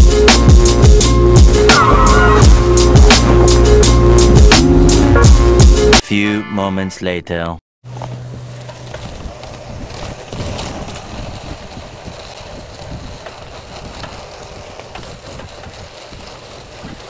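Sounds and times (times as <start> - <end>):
bike tyres on wet gravel: 7.8 - 17.0
stones and bike rattling: 7.8 - 17.0
wind noise on microphone: 8.9 - 17.0.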